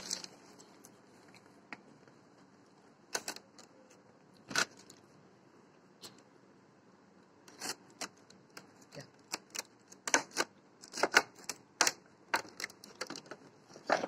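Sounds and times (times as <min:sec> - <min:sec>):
plastic packaging crackling: 0:00.0 - 0:00.8.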